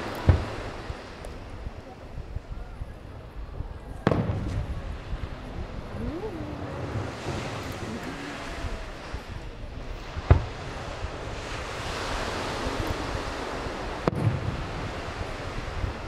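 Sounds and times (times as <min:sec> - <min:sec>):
wind on microphone: 0:00.0 - 0:16.0
fireworks bangs: 0:04.0 - 0:05.0
surf hissing: 0:04.6 - 0:16.0.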